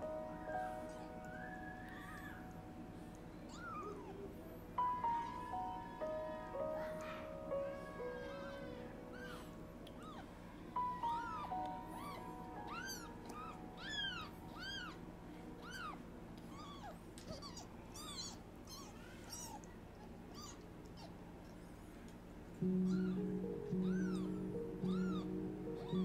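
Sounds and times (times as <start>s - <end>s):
faint background music: 0.0s - 26.0s
kitten mewing: 3.5s - 4.3s, 10.0s - 10.3s, 11.1s - 15.0s, 15.6s - 21.2s, 22.6s - 26.0s.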